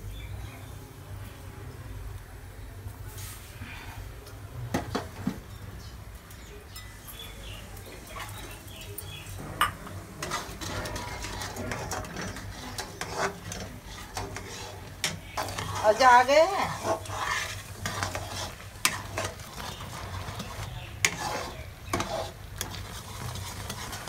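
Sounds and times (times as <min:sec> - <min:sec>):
spoon scraping in iron pan: 0:06.3 - 0:24.0.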